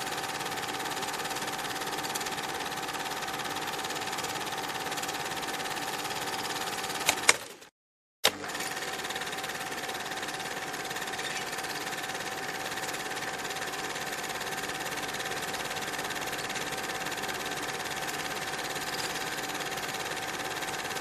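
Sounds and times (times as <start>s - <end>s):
film projector whirring and rattling: 0.0s - 21.0s
sharp click: 7.0s - 7.6s.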